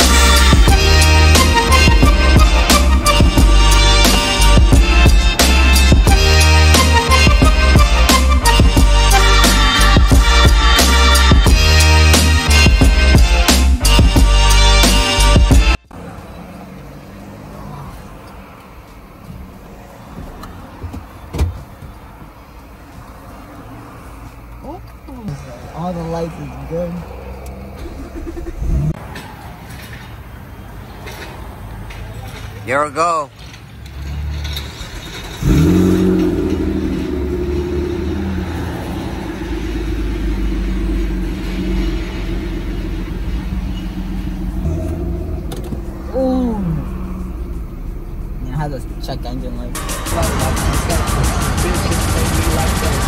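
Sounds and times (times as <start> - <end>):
car engine starting and idling: 0.0 - 53.0
low vehicle rumble: 0.0 - 53.0.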